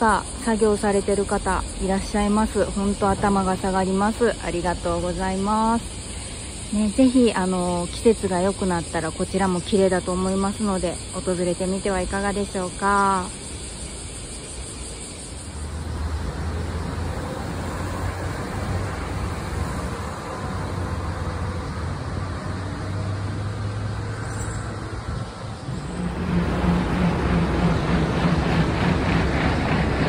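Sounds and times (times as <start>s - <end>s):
low traffic hum: 14.0s - 30.0s
passing cars: 15.5s - 30.0s.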